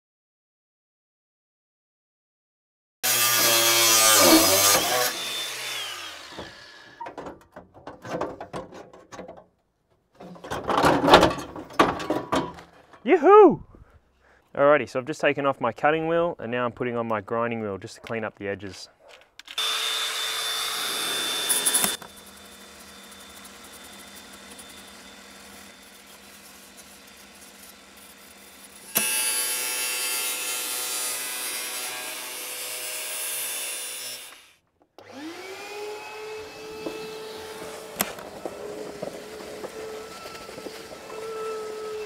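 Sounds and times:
angle grinder grinding metal: 0:03.0 - 0:07.2, 0:19.4 - 0:42.0
motor whine: 0:19.6 - 0:27.2, 0:35.0 - 0:42.0.

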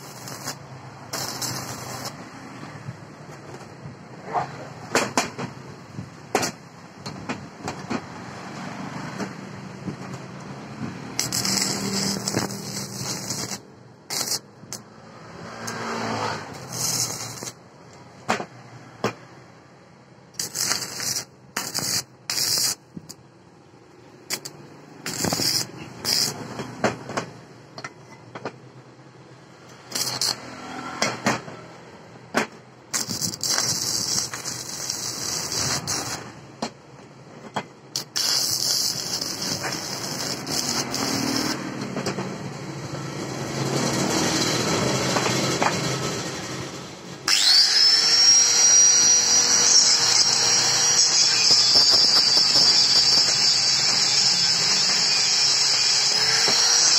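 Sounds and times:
welding arc crackling: 0:00.0 - 0:02.2, 0:11.1 - 0:14.8, 0:16.6 - 0:17.6, 0:20.4 - 0:23.2, 0:24.3 - 0:26.5, 0:29.9 - 0:30.4, 0:32.9 - 0:36.3, 0:38.0 - 0:41.7, 0:48.3 - 0:56.9.

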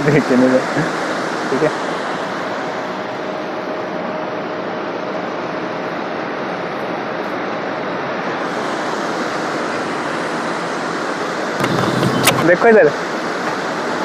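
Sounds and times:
wind and road noise from car: 0:07.4 - 0:14.0.

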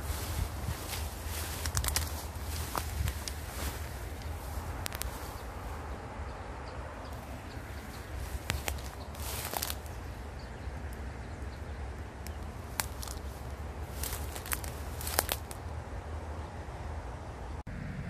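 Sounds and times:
weeds rustling: 0:00.0 - 0:06.1, 0:07.1 - 0:15.8
wind on microphone: 0:00.0 - 0:06.6
sharp clicks: 0:04.2 - 0:05.2.

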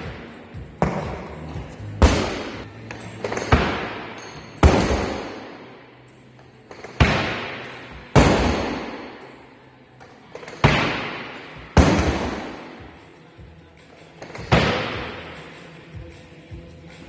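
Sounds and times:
barbell thuds with hall echo: 0:00.0 - 0:05.8, 0:06.7 - 0:09.4, 0:10.3 - 0:13.0, 0:14.2 - 0:15.5.

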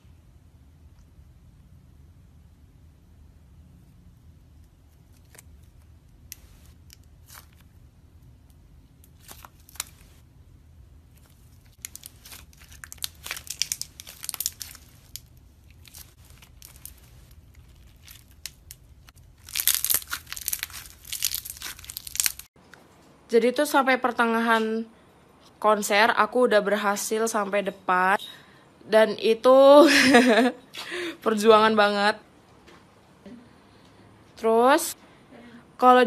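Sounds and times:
slime clicking and crackling: 0:11.1 - 0:22.5.

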